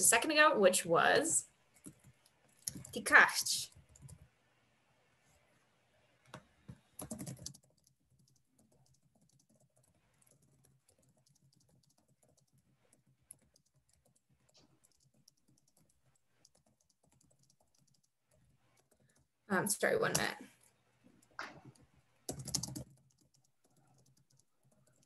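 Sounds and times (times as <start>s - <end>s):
computer keyboard typing: 1.8s - 3.0s, 3.7s - 4.3s, 6.3s - 19.3s, 21.2s - 25.0s.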